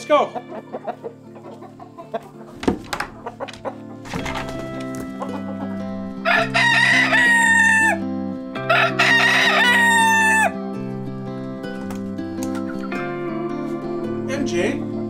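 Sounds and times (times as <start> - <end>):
background music: 0.0 - 15.0
rooster crowing: 6.2 - 10.6.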